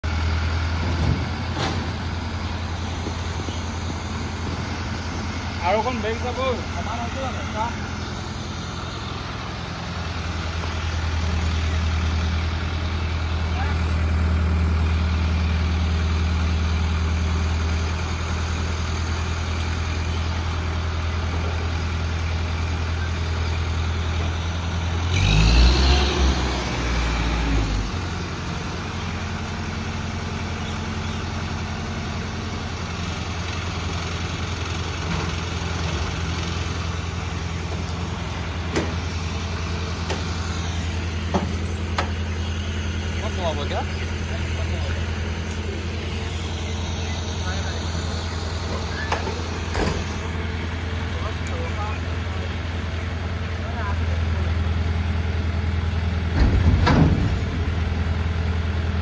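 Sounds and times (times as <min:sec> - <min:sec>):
diesel crane engine running: 0:00.0 - 0:59.0.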